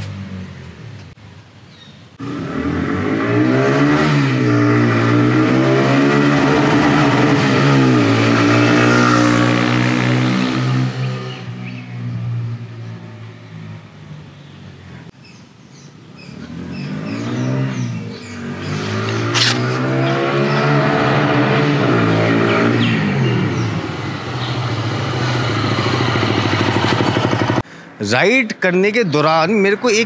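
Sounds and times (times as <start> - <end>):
motorcycle engine revving: 2.2 - 14.3, 16.2 - 27.7.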